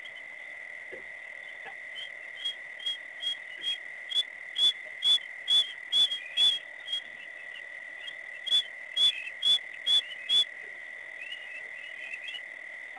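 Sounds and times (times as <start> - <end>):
high-pitched night chorus: 0.0 - 12.9
short high whistled calls: 2.0 - 3.8, 4.6 - 7.2, 8.4 - 10.5, 11.2 - 12.4.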